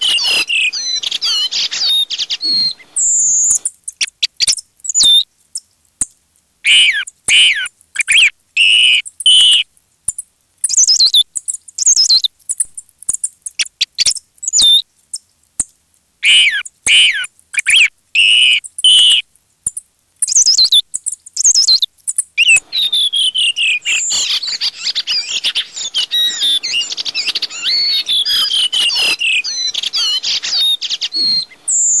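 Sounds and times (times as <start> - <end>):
dense twittering of many birds: 0.0 - 5.2, 20.2 - 32.0
thrush calls: 0.0 - 5.2, 6.6 - 9.6, 16.2 - 19.2, 22.4 - 32.0.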